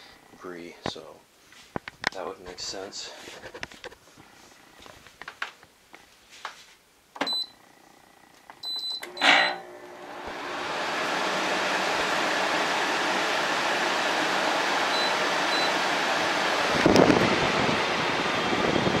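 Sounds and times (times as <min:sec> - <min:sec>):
control panel beeps: 0:08.6 - 0:09.6
air conditioner fan rushing: 0:08.8 - 0:19.0.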